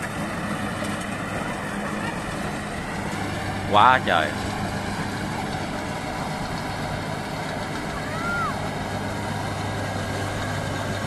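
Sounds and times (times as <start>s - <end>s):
harvester diesel engine running: 0.0s - 11.0s
call rising and falling: 3.6s - 4.4s.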